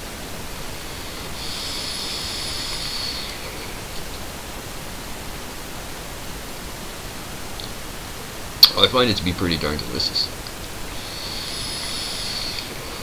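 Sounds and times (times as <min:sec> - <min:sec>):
air hissing: 0:00.0 - 0:05.1, 0:10.6 - 0:13.0
vape coil sizzling: 0:00.5 - 0:04.4, 0:10.4 - 0:13.0.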